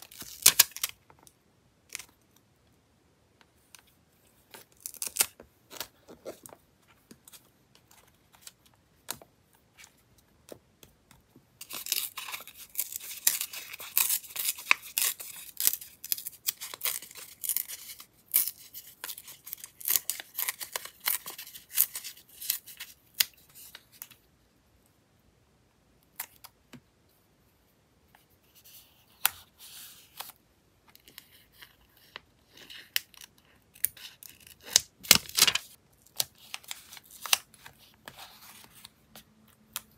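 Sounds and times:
paper crinkling and tearing: 0:33.8 - 0:38.9.

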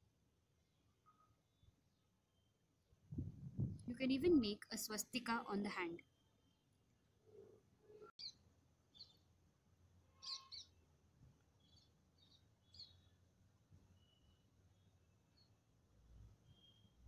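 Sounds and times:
faint bird chirps: 0:00.7 - 0:02.6, 0:10.1 - 0:10.8, 0:11.6 - 0:13.2, 0:13.9 - 0:15.6, 0:16.4 - 0:17.0.

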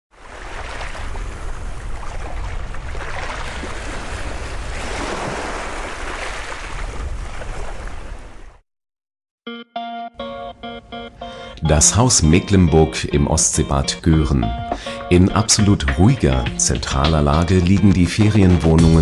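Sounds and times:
surf washing onto beach: 0:00.1 - 0:08.4
wind on microphone: 0:00.3 - 0:08.5.

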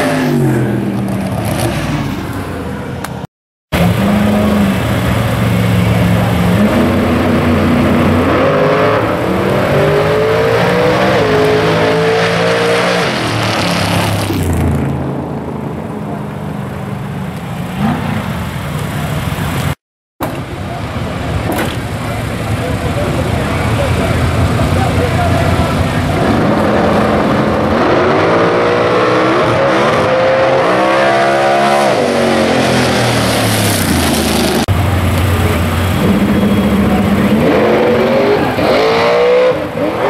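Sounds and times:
racing car engine at full throttle: 0:00.0 - 0:40.0
low engine rumble: 0:14.4 - 0:27.6, 0:33.0 - 0:37.4.

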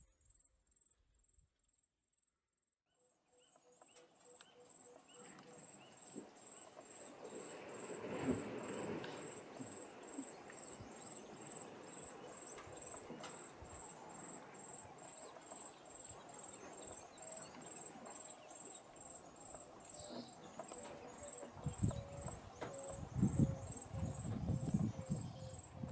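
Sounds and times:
insect chirping: 0:04.3 - 0:25.9
water splashing and sloshing: 0:05.5 - 0:15.5.

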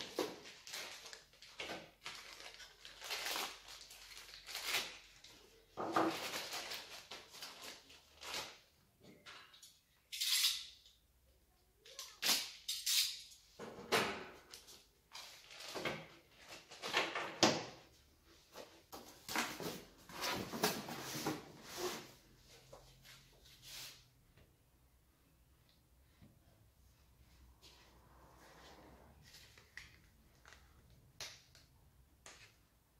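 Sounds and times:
packaging rustling and crinkling: 0:00.0 - 0:08.6.

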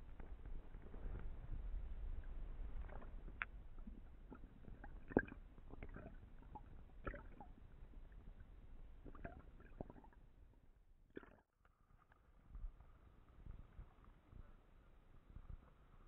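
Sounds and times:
knocks and clicks underwater: 0:00.0 - 0:08.4, 0:09.0 - 0:10.2, 0:11.1 - 0:12.7
underwater low rumble: 0:00.0 - 0:16.0.

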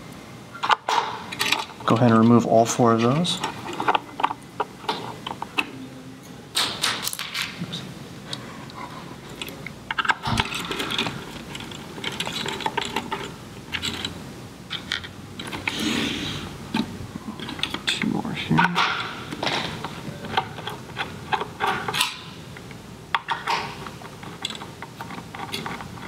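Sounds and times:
metallic rattles: 0:09.9 - 0:15.8.

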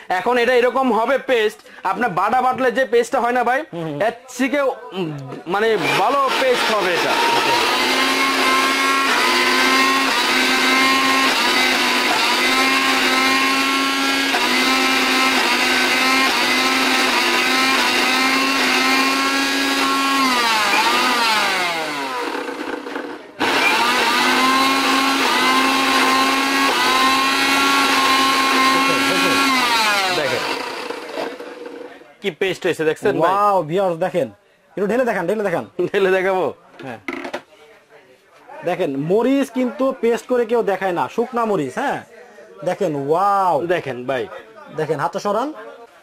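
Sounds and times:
mixer grinder motor whining: 0:05.5 - 0:32.0.

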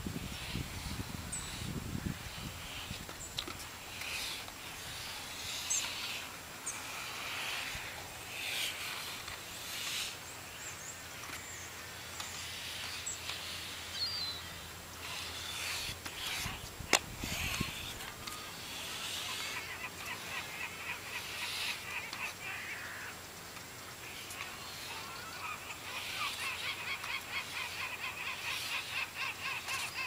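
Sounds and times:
inline skates rolling: 0:00.4 - 0:10.2, 0:15.1 - 0:22.8
skate wheel chirps: 0:00.4 - 0:23.1, 0:24.2 - 0:30.0.

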